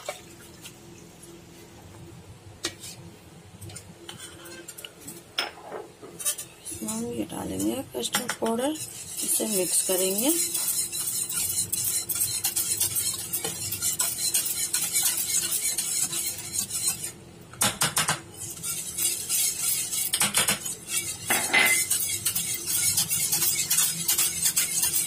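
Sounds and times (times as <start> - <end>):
whisk clinking in metal pot: 6.2 - 25.0.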